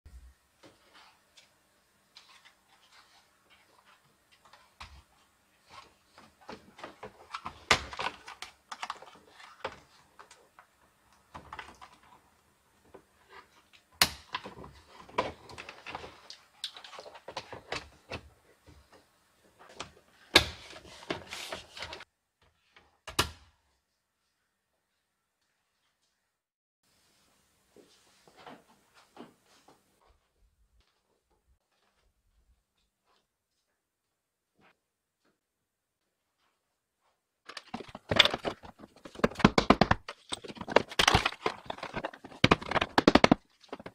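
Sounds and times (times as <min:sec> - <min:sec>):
plastic snapping: 0:37.5 - 0:43.9
plastic trim clicking and knocking: 0:37.5 - 0:43.9.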